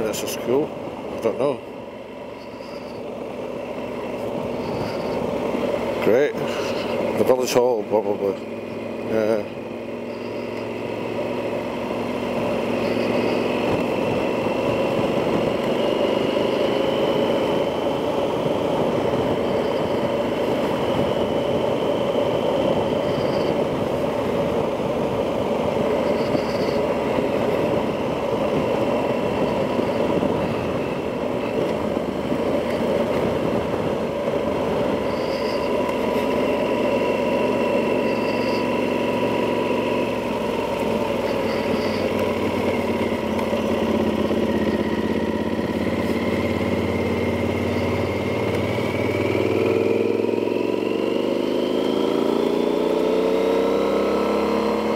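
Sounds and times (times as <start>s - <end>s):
motorcycle engine running: 0.0s - 54.9s
wind noise: 4.1s - 5.6s, 12.7s - 36.6s.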